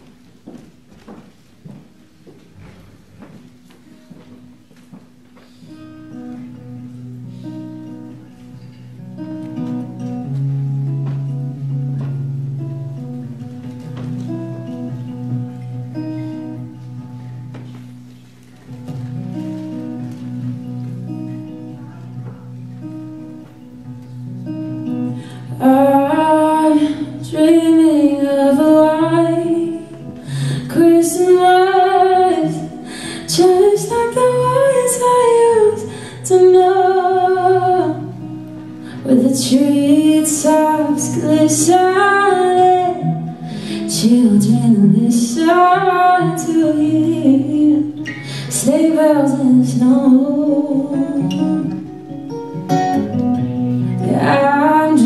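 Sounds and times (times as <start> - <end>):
acoustic guitar: 0.0 - 55.0
woman singing a slow ballad: 25.0 - 51.9, 53.9 - 55.0.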